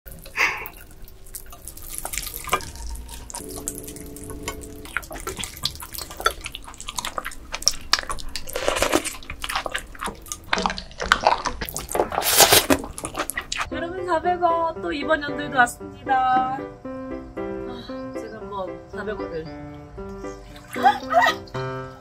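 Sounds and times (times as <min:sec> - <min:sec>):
wet slurping and chewing: 0:00.1 - 0:03.8, 0:04.8 - 0:13.7
water dripping and splattering: 0:00.1 - 0:13.7, 0:20.5 - 0:21.5.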